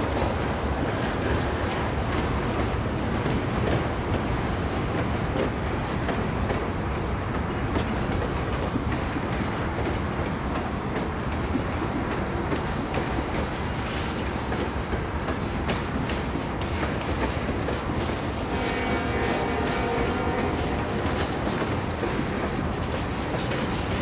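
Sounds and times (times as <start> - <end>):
steel wheels rumbling on rail: 0.0 - 24.0.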